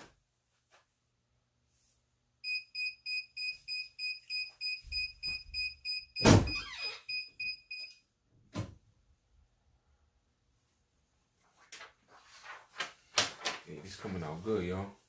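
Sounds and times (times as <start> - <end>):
high timer beeps: 2.4 - 7.9.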